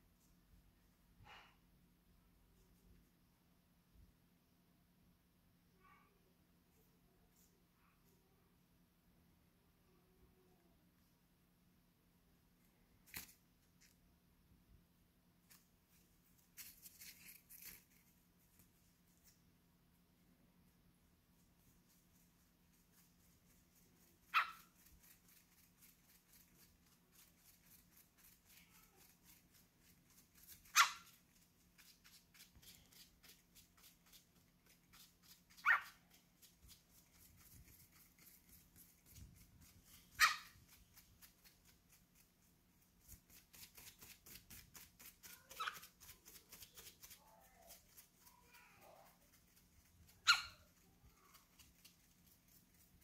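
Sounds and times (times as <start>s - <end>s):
faint rapid clicking: 21.6s - 53.0s
cockatiel harsh calls: 30.6s - 31.2s.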